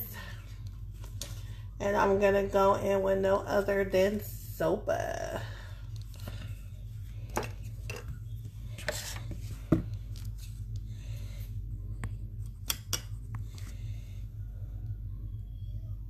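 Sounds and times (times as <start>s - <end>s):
steady low hum: 0.0s - 16.0s
makeup brush scraping powder: 7.6s - 10.7s.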